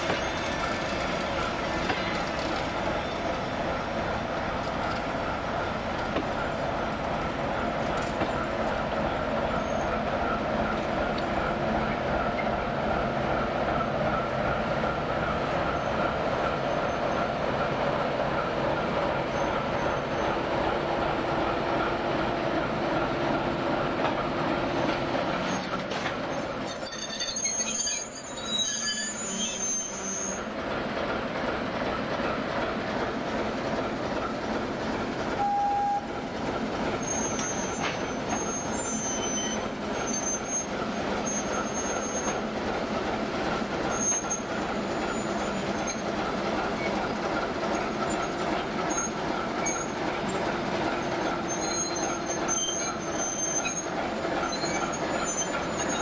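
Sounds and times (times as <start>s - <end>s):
wheels squealing on rails: 0.0s - 3.6s, 7.5s - 10.8s, 13.7s - 17.4s, 19.1s - 20.6s, 24.8s - 30.6s, 36.8s - 42.7s, 43.4s - 56.0s
diesel locomotive engine running: 0.0s - 56.0s.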